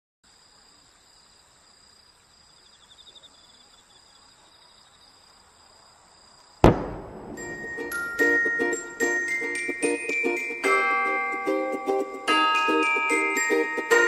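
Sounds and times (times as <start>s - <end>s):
crickets chirping: 0.2s - 14.0s
firework bang: 6.6s - 8.6s.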